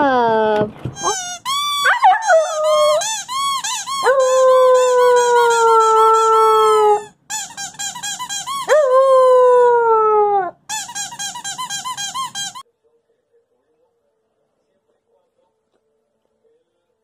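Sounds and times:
puppy howling: 0.0 - 7.1, 8.6 - 10.6
puppy yipping: 1.0 - 5.6.

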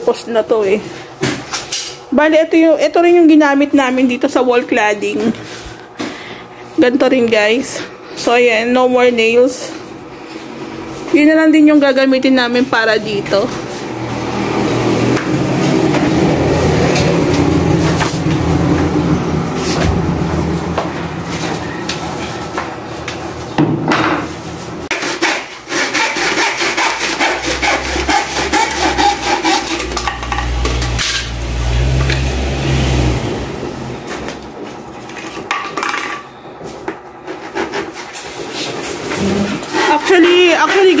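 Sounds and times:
hand saw cutting wood: 24.9 - 32.9, 37.3 - 41.0.

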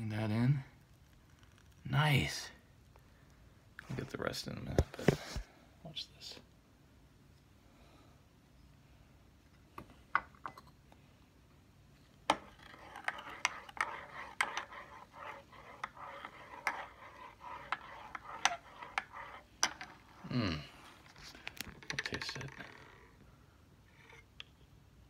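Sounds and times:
spoon stirring in a cup: 12.3 - 20.2.

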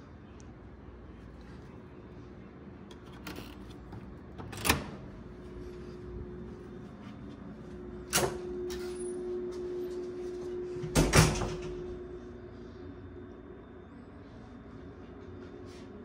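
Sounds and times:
faint steady hum: 0.0 - 16.0
door shutting with a thud: 10.8 - 11.8.

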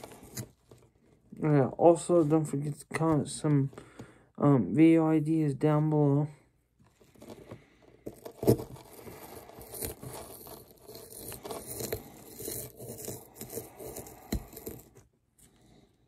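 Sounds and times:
tool scraping into hard clay: 7.0 - 15.6.

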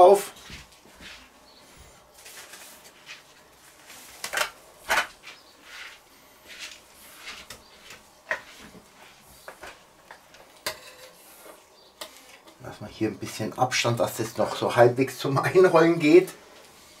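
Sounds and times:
soft rustling: 0.3 - 4.2, 5.1 - 10.0.

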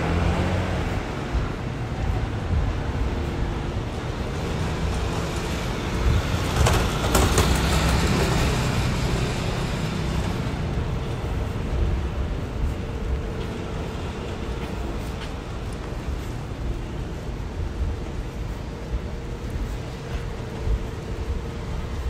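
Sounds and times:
city street traffic rumble: 0.0 - 22.0.

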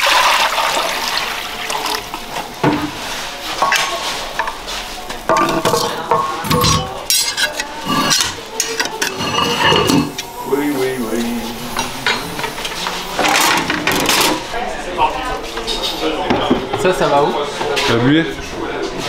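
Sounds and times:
metal-on-metal scraping: 5.3 - 10.3.

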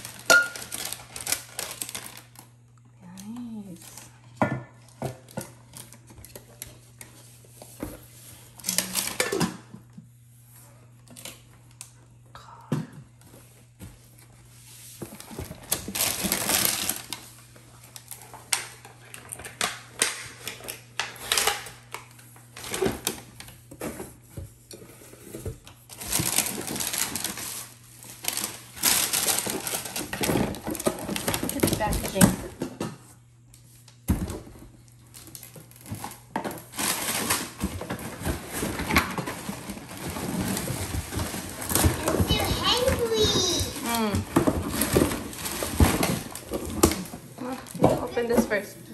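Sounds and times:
plastic wrapping crinkling: 0.0 - 2.8, 14.1 - 23.6, 24.7 - 32.4, 34.6 - 48.3.

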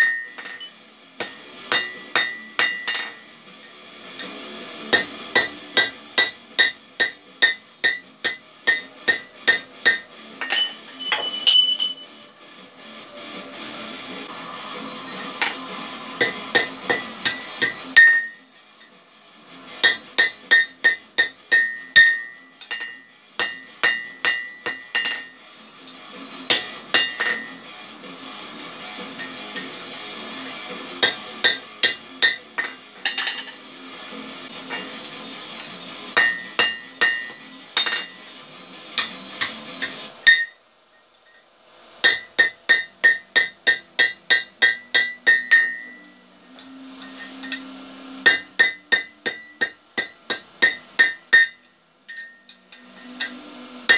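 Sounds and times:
hammer striking iron on anvil: 0.0 - 3.3, 4.2 - 12.2, 15.1 - 18.9, 19.7 - 25.4, 26.5 - 27.6, 29.0 - 29.8, 30.7 - 33.6, 34.6 - 38.2, 38.9 - 40.6, 42.0 - 53.9.

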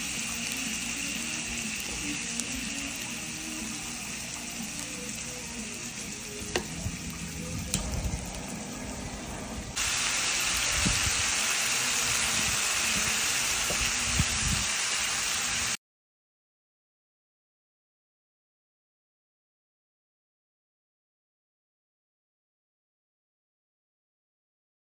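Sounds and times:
food sizzling on a grill pan: 0.0 - 15.8.

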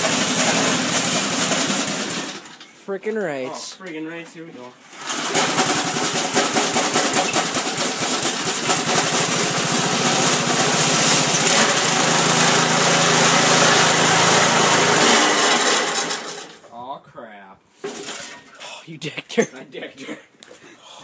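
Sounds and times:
small gasoline engine running: 0.0 - 2.6, 5.0 - 16.6.

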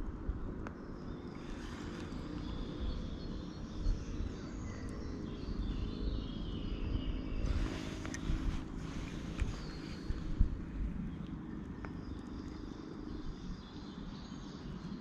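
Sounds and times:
steady low rumble: 0.0 - 15.0
birds singing: 0.3 - 15.0.

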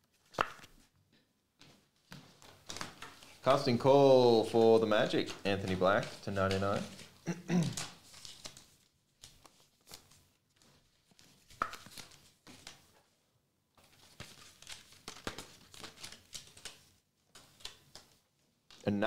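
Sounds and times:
card sleeves rustling and tapping: 0.0 - 0.9, 4.4 - 13.0, 13.8 - 18.8.

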